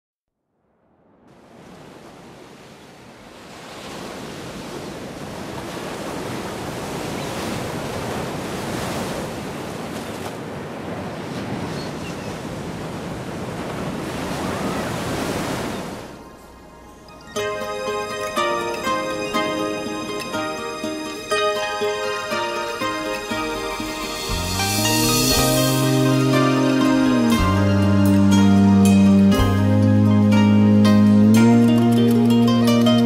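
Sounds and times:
rushing surf-like noise: 17.9s - 27.6s.

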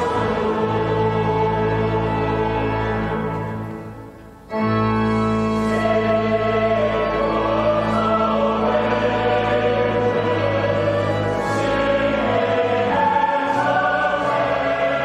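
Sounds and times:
choir singing a carol: 0.0s - 15.0s
organ accompaniment: 0.0s - 15.0s.

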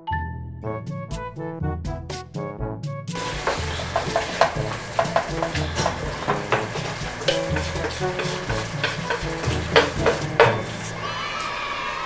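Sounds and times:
chopsticks scraping frying pans: 3.2s - 11.4s
food sizzling: 3.2s - 11.7s.

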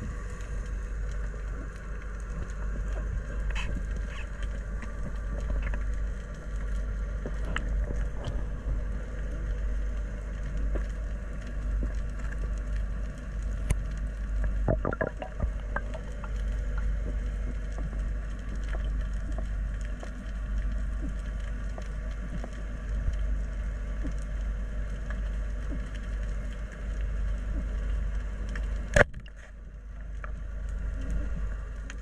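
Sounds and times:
faint steady hum: 0.0s - 32.0s
small clicks and crackles: 0.0s - 32.0s
underwater low rumble: 0.0s - 32.0s.

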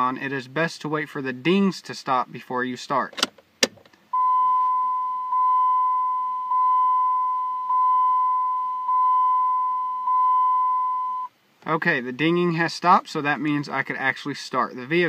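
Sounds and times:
car warning chime dinging: 4.2s - 11.3s.

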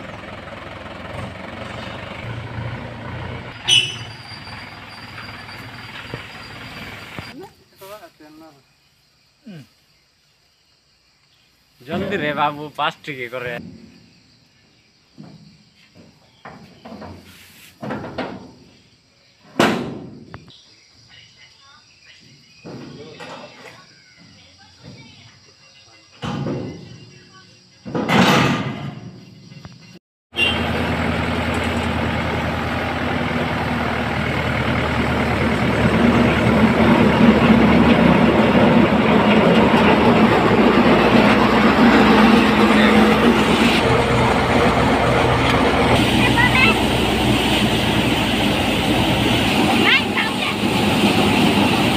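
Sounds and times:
tractor engine hum: 0.0s - 7.5s, 30.3s - 51.9s
loud metal bang: 28.1s - 29.1s
threshing machine running: 30.4s - 51.9s.

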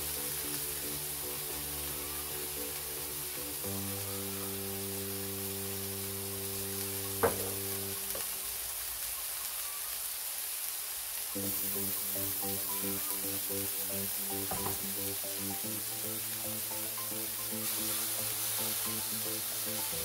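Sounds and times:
burger patties sizzling in skillets: 0.0s - 20.0s
sharp knock: 7.2s - 7.6s.

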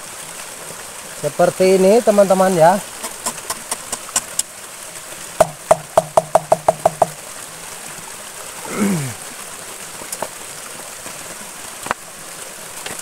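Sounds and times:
faint steady hiss: 0.0s - 13.0s
hollow ringing knocks: 5.4s - 7.2s.

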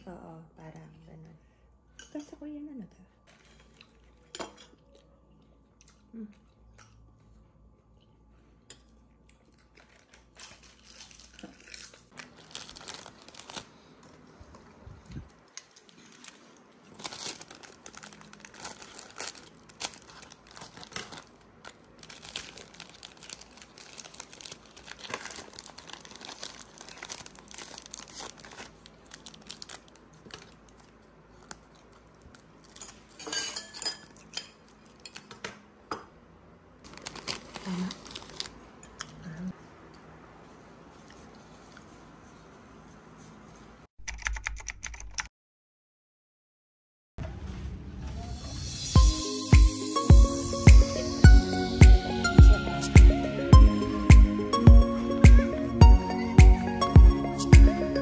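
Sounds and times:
crinkling and rustling: 3.2s - 5.1s, 9.2s - 35.4s, 36.8s - 38.6s.

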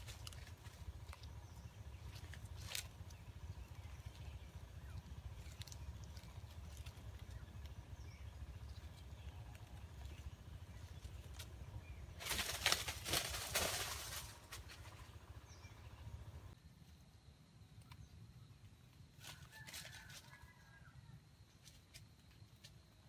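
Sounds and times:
rustling: 11.0s - 15.2s
rooster wings flapping: 12.1s - 15.0s.

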